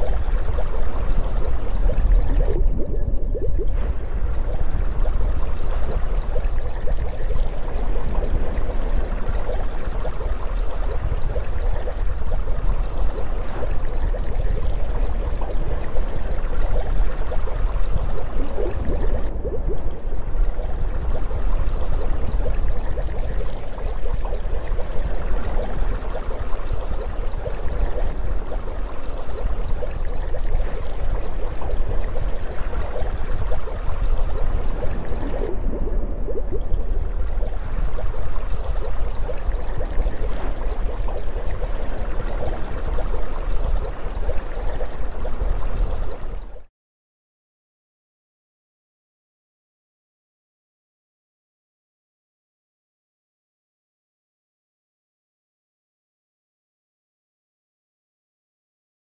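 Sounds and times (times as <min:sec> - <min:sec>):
underwater moving water: 0:00.0 - 0:46.7.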